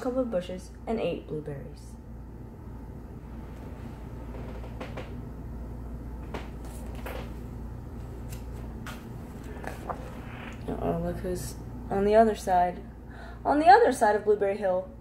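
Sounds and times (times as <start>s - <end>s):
steady low hum: 0.0s - 15.0s
paper pages rustling: 6.4s - 7.4s, 8.0s - 10.6s.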